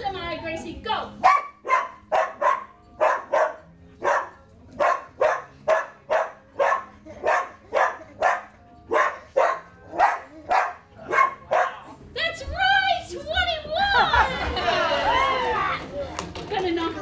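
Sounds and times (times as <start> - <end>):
dog barking: 1.2 - 11.9.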